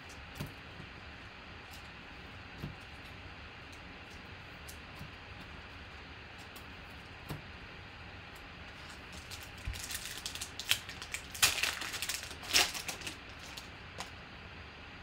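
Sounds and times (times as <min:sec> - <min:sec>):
foil wrapper crinkling and tearing: 0:08.7 - 0:14.1.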